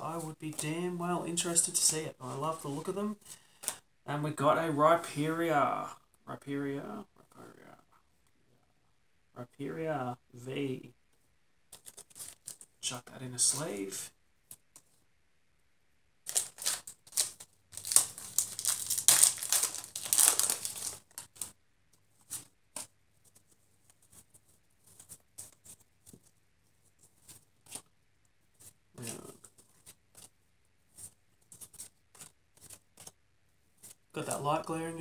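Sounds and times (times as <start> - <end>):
cards clicking and rustling: 11.7 - 12.7, 16.3 - 21.6
foil wrapper tearing and crinkling: 16.3 - 21.5.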